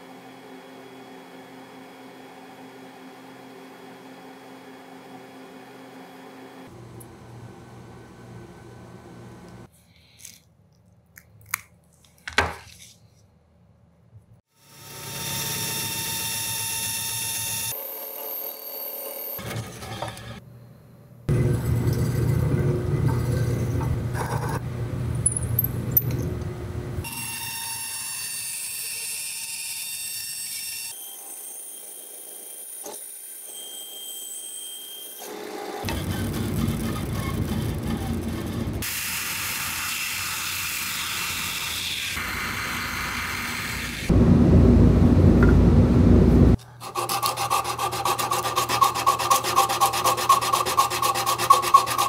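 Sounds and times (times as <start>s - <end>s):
band saw cutting wood: 14.6s - 20.4s, 27.0s - 44.1s, 46.6s - 52.0s
drill press boring wood: 14.7s - 20.4s, 35.2s - 44.1s
belt grinder sanding: 35.8s - 38.8s, 46.7s - 52.0s.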